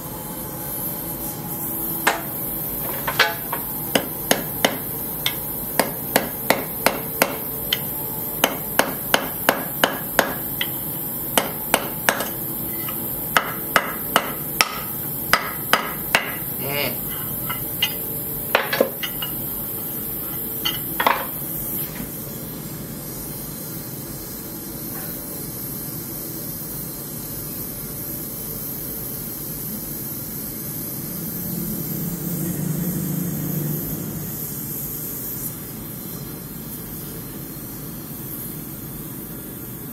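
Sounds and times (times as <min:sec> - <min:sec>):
gas torch flame hissing: 0:00.0 - 0:39.9
hammer striking steel on anvil: 0:02.0 - 0:10.8, 0:11.4 - 0:16.5, 0:17.5 - 0:19.4.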